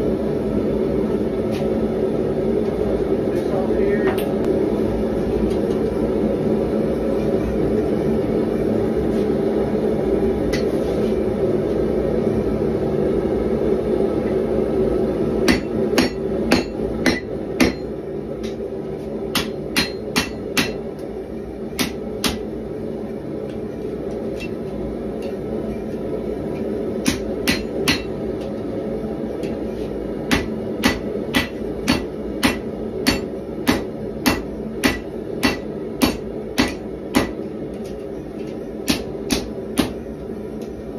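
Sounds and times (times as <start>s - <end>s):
forge burner roar: 0.0s - 40.9s
hammer striking metal on anvil: 15.5s - 18.6s, 19.3s - 20.8s, 21.8s - 22.4s, 27.0s - 28.5s, 30.3s - 40.0s.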